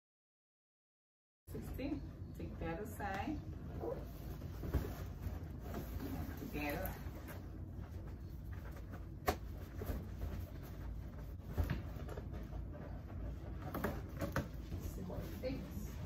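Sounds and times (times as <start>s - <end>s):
steady low hum: 1.5s - 16.0s.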